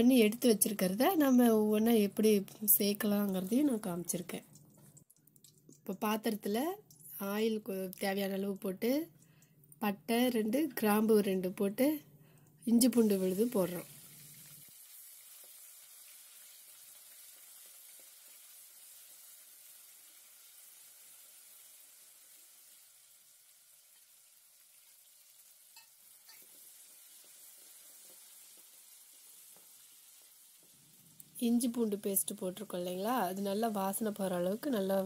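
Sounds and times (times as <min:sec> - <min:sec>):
paste sizzling in hot oil: 0:12.8 - 0:35.0.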